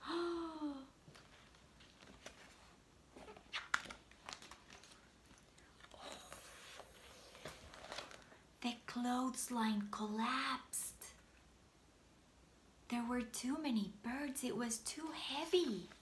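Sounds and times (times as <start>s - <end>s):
paper rustling: 1.1s - 5.9s, 6.5s - 8.4s
light clicks of pages: 1.1s - 8.3s.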